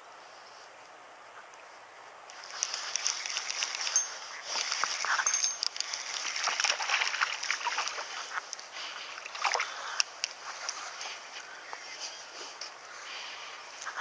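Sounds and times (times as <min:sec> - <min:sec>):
sharp crackles and rustles: 0:00.4 - 0:14.0
fish splashing in water: 0:02.4 - 0:05.2, 0:05.8 - 0:10.0.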